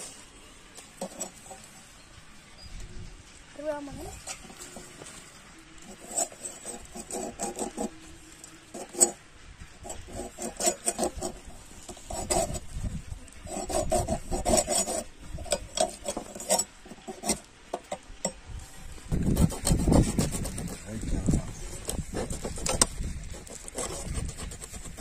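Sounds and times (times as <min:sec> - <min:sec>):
knife scraping fish scales: 0:09.8 - 0:12.6, 0:13.4 - 0:17.5, 0:21.6 - 0:25.0.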